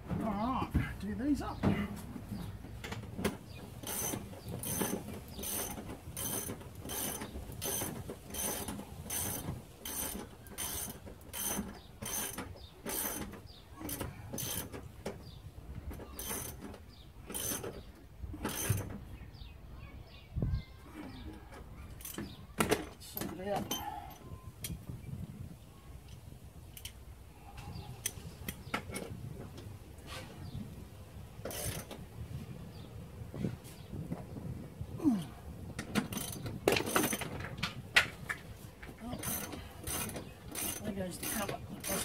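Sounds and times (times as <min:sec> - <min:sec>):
socket ratchet strokes: 0:03.8 - 0:14.8, 0:16.2 - 0:16.6, 0:17.2 - 0:17.8, 0:31.4 - 0:32.0, 0:39.2 - 0:42.0.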